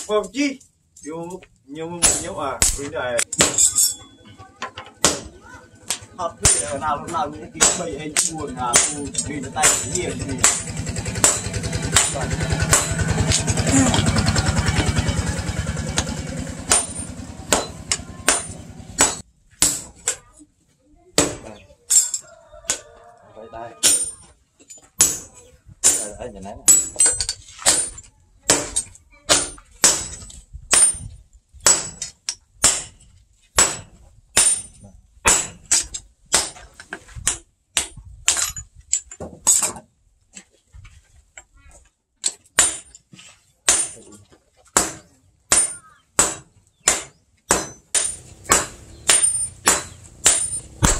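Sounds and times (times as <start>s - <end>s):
sledgehammer striking steel on anvil: 2.0s - 4.2s, 4.8s - 20.2s, 23.8s - 24.3s, 25.0s - 38.7s, 42.2s - 43.0s, 43.6s - 50.9s
small engine throbbing: 9.4s - 19.0s.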